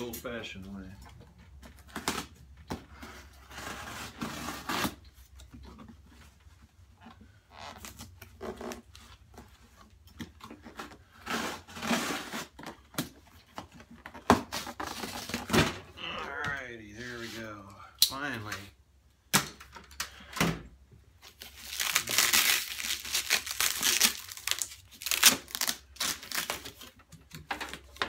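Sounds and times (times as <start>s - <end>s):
cardboard scraping and rustling: 1.6s - 15.9s.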